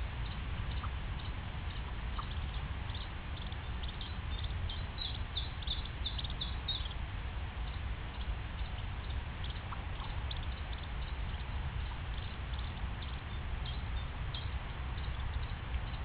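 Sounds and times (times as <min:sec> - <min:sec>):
low background rumble: 0:00.0 - 0:16.0
duckling peeping: 0:00.2 - 0:07.0, 0:07.6 - 0:16.0.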